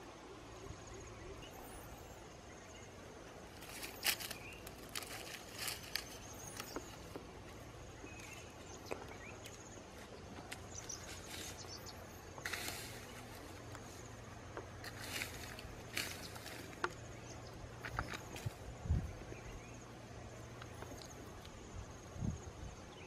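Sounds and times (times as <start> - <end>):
faint high insect trill: 0.0 - 23.0
outdoor background noise: 0.0 - 23.0
stick and feet scraping ground: 3.5 - 17.1.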